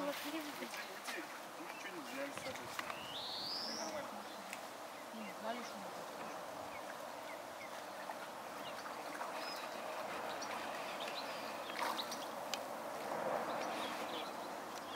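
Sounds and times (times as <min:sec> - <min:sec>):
running water: 0:00.0 - 0:14.9
bird chirps: 0:01.2 - 0:05.8.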